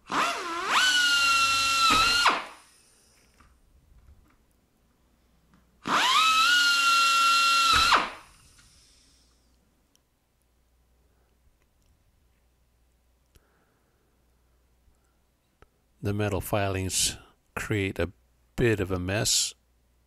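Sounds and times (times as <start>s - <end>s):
pneumatic air drill whining: 0.0s - 3.3s, 5.8s - 9.4s.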